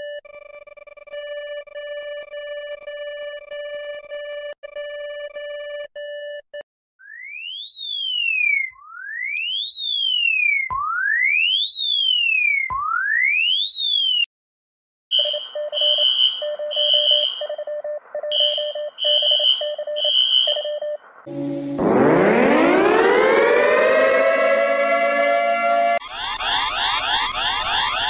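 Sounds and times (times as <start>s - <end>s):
rapid pulsed beeping alarm: 0.0s - 6.4s, 15.1s - 28.0s
rising and falling alert tone: 21.3s - 28.0s.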